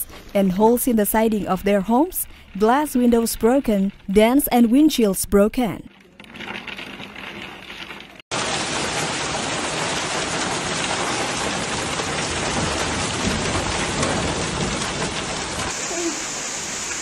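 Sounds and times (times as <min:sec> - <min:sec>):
hail on a car: 0:08.3 - 0:15.8.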